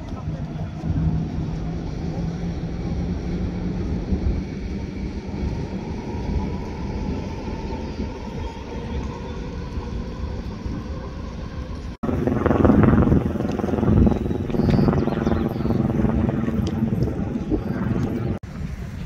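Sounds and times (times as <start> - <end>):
engine humming: 0.0 - 19.0.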